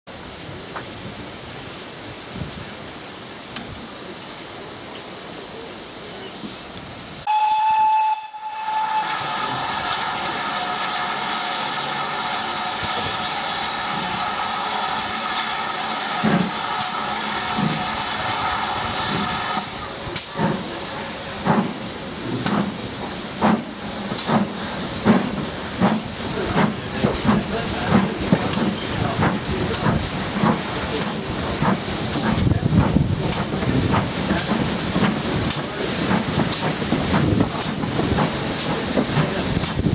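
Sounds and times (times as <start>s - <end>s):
steam hissing: 0.5s - 39.9s
steam whistle: 7.2s - 15.9s.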